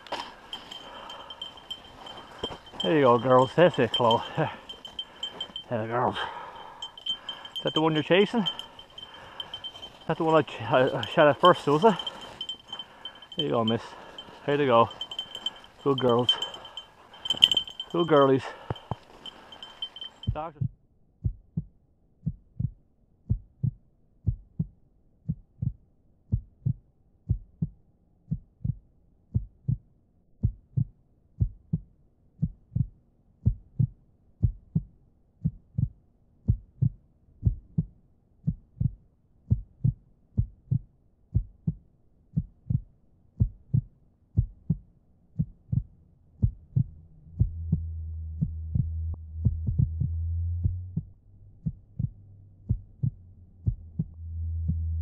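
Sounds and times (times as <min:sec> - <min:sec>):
heartbeat thumps: 0:00.2 - 0:20.5, 0:21.2 - 0:29.8, 0:30.4 - 0:41.8, 0:42.4 - 0:54.8
low steady rumble: 0:45.8 - 0:55.0.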